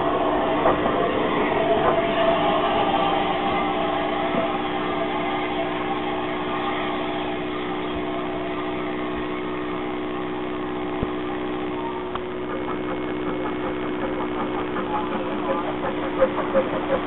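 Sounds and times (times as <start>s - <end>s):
steam locomotive hum and hiss: 0.0s - 17.0s.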